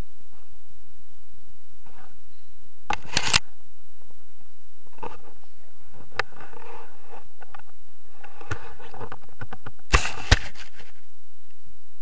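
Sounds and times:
camera handling rustling: 0:02.9 - 0:03.4, 0:06.2 - 0:11.0.

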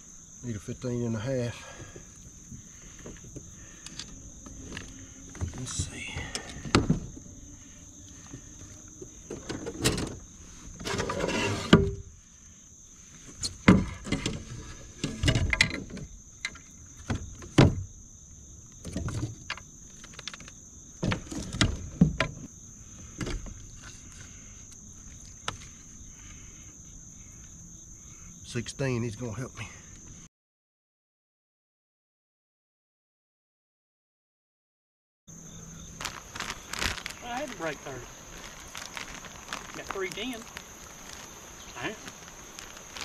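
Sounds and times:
high insect buzz: 0:00.0 - 0:30.3, 0:35.3 - 0:43.0
knocks and scrapes on kayak: 0:08.2 - 0:12.0, 0:13.2 - 0:17.8, 0:18.8 - 0:24.4.

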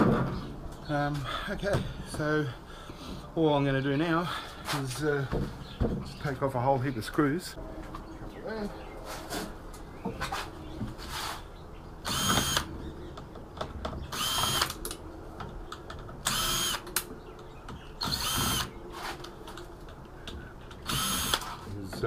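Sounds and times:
cordless screwdriver whirring: 0:12.0 - 0:12.7, 0:14.1 - 0:14.8, 0:16.2 - 0:16.8, 0:18.0 - 0:18.7, 0:20.8 - 0:21.4.

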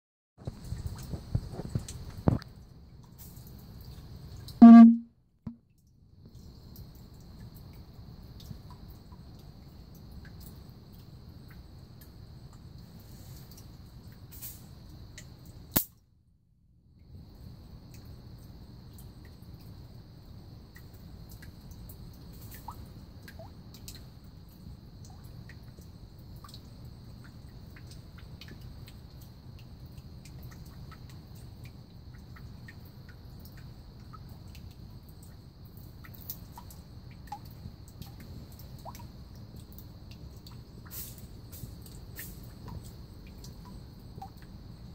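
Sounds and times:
small ticks and drips: 0:00.4 - 0:44.9
faint high whine: 0:04.6 - 0:05.1.

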